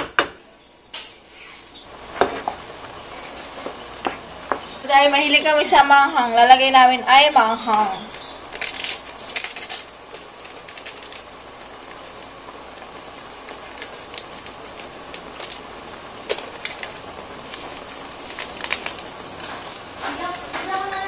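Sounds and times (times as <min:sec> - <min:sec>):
water boiling with bubbling hiss: 0:01.1 - 0:21.0
pops and clicks: 0:08.5 - 0:19.6.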